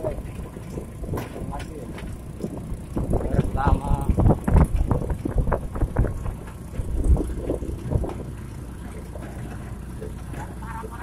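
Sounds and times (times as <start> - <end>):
wind noise: 0.0 - 8.4
knocks and rattles from bumpy ride: 0.0 - 11.0
motorbike engine: 0.0 - 11.0
road rumble: 0.0 - 11.0.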